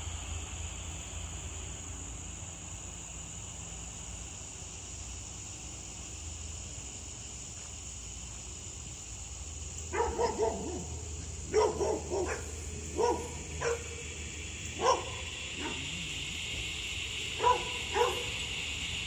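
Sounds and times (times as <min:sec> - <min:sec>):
crickets droning: 0:00.0 - 0:19.0
dog barking: 0:09.9 - 0:14.0, 0:14.8 - 0:15.9, 0:17.4 - 0:18.3.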